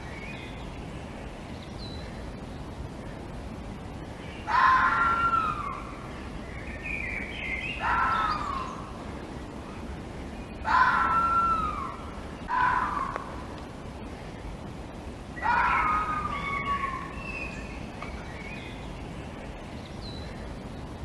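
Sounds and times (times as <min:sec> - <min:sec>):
fox calling: 0:04.4 - 0:06.1, 0:07.6 - 0:09.1, 0:10.6 - 0:13.6, 0:15.3 - 0:17.8.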